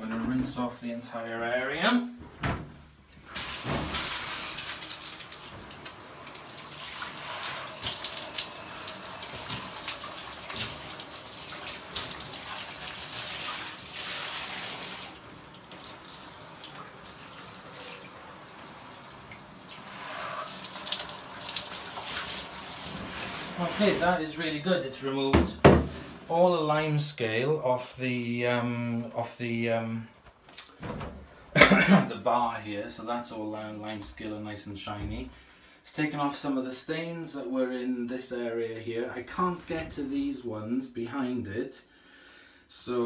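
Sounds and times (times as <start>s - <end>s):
shower spraying on tiles: 3.3s - 24.1s.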